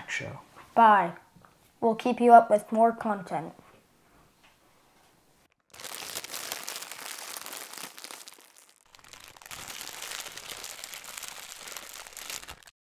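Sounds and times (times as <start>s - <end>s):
crinkling crackling noise effect: 5.4s - 12.7s.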